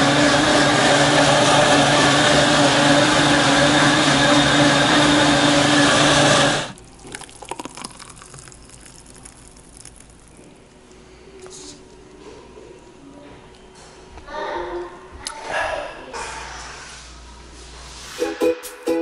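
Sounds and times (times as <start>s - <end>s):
blender running at high speed: 0.0s - 6.8s
drink pouring into a glass: 6.7s - 10.6s.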